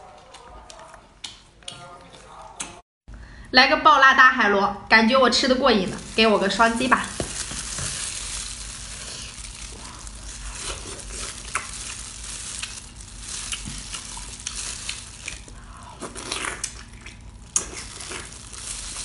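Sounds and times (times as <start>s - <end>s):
wet eating sounds: 0.0s - 2.8s, 5.8s - 19.0s
wet squelching of snail meat: 5.9s - 19.0s.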